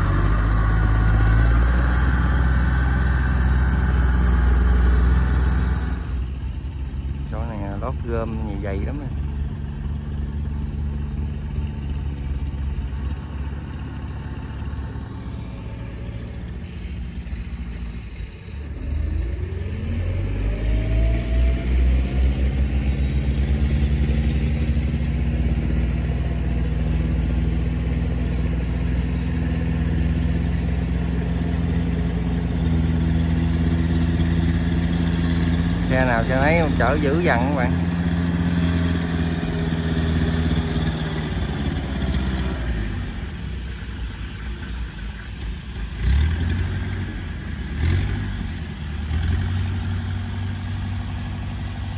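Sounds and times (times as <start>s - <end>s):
tracked carrier engine running: 0.0s - 51.9s.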